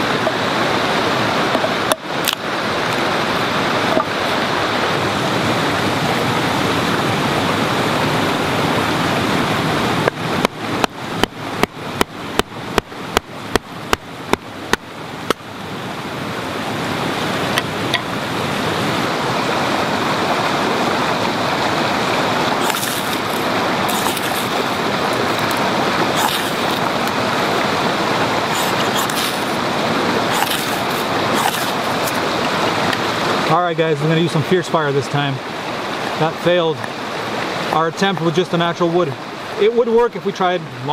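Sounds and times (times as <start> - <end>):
forest stream rushing: 0.0 - 40.9
hatchet chopping wood: 22.6 - 24.8, 28.6 - 29.6, 30.3 - 32.2
ferro rod scraping: 22.6 - 27.0, 28.5 - 32.3.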